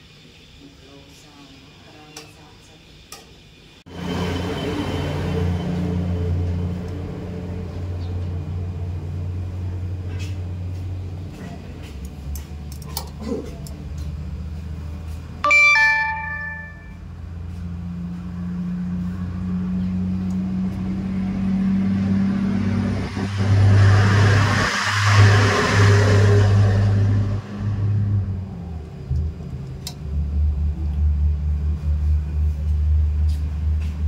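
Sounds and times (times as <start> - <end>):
bell-like ding: 15.4 - 17.0
motor vehicle passing: 17.4 - 29.4.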